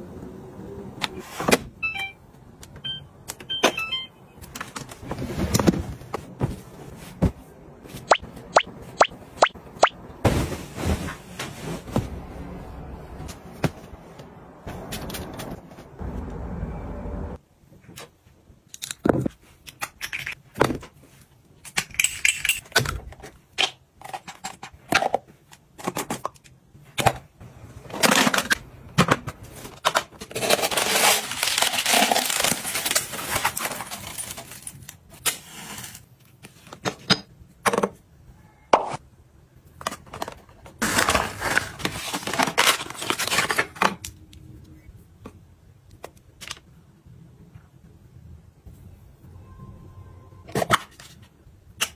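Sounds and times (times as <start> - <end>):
cardboard and paper crinkling: 29.4 - 35.1, 39.8 - 44.1.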